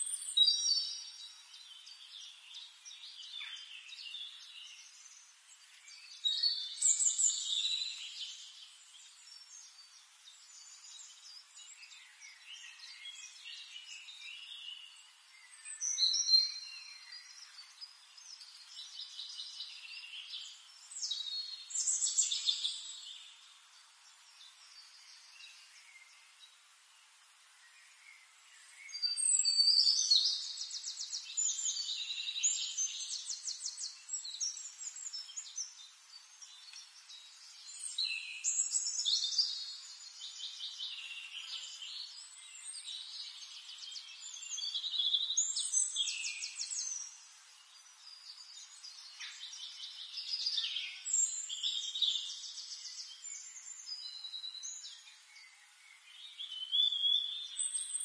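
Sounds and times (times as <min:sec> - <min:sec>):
songbird trilling and whistling: 0:28.9 - 0:35.5.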